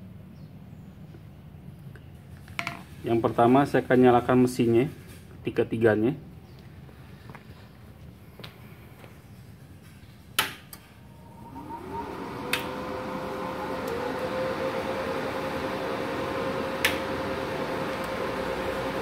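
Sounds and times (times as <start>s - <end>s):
cooling fan whirring: 8.3s - 19.0s
power switch clicks: 12.5s - 12.8s, 16.8s - 17.2s.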